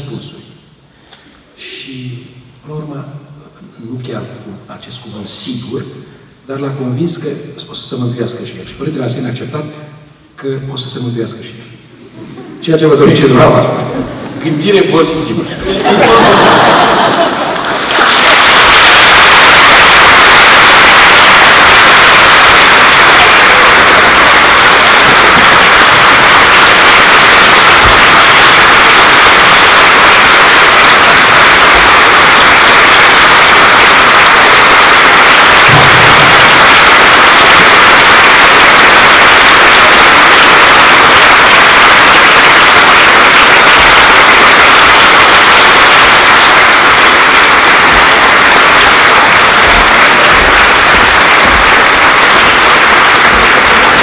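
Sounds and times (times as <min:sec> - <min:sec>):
audience applauding: 0:13.0 - 0:54.0.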